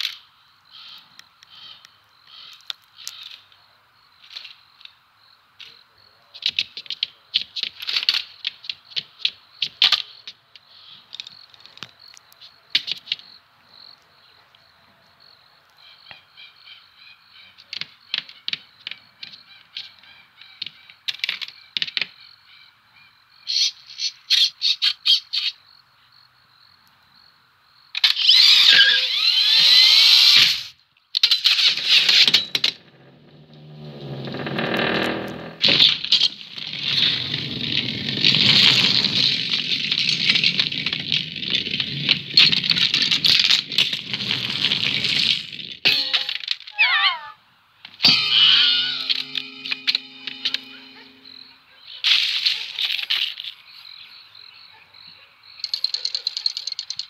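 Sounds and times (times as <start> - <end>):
faint high tone: 48.0 - 51.8.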